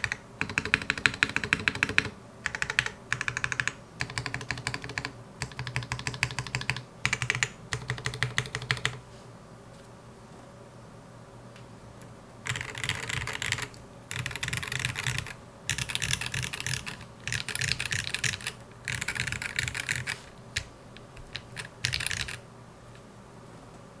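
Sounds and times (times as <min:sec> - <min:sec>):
mechanical keyboard typing: 0:00.0 - 0:09.0, 0:12.5 - 0:22.4.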